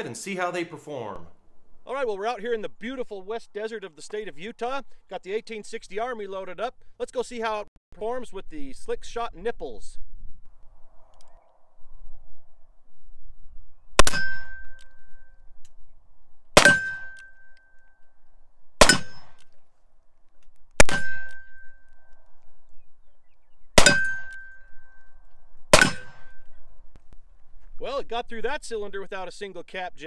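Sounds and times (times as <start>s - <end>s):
revolver gunshots: 14.0s - 14.7s, 16.6s - 17.2s, 18.8s - 19.4s, 20.8s - 21.5s, 23.8s - 24.4s, 25.7s - 26.5s.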